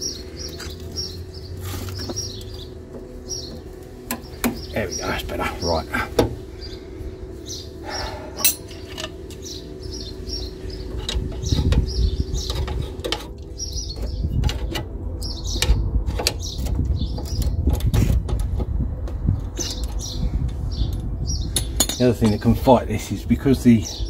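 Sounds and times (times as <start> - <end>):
low rumble: 0.0 - 23.4
birds chirping: 0.0 - 24.0.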